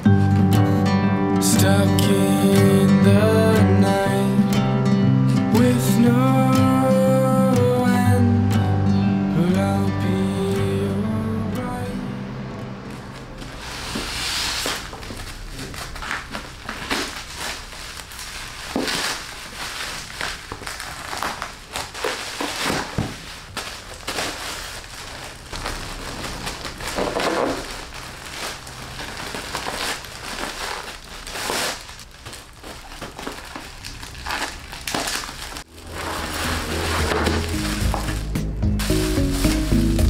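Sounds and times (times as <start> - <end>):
plastic packaging crinkling: 12.9 - 40.0.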